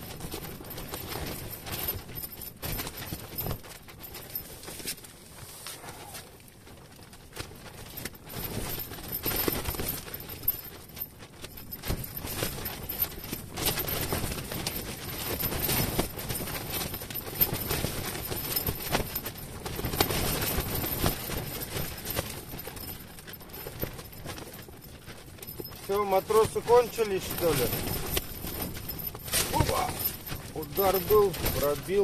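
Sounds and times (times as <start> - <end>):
tent fabric flapping: 0.0 - 32.0
wind buffeting tent: 6.6 - 32.0.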